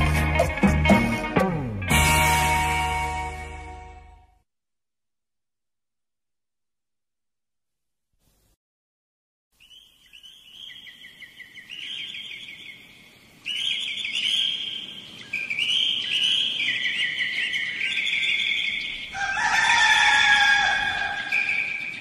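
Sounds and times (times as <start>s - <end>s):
birds chirping in trills: 9.6s - 22.0s
low long bird call: 13.5s - 22.0s.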